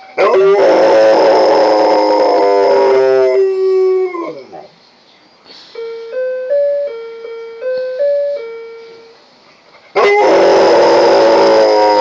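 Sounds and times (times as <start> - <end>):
dog howling: 0.2 - 4.7, 10.0 - 12.0
electronic doorbell chime tune: 5.8 - 9.1.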